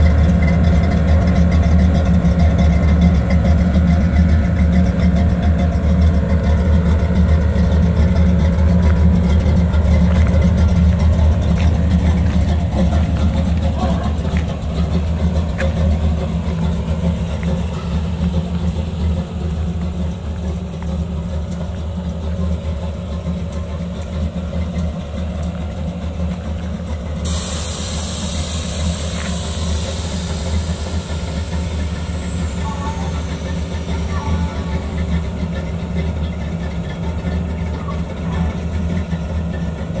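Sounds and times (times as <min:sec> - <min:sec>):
truck engine idling: 0:00.0 - 0:40.0
air hissing: 0:27.2 - 0:35.4.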